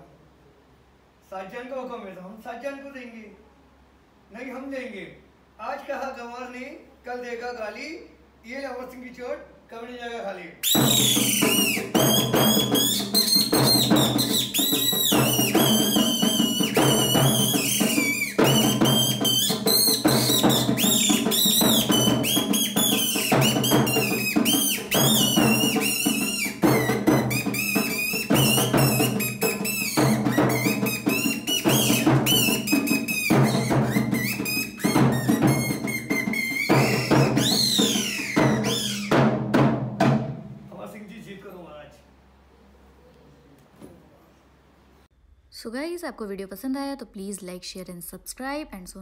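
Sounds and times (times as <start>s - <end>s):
fast continuous drumming: 10.7s - 40.9s.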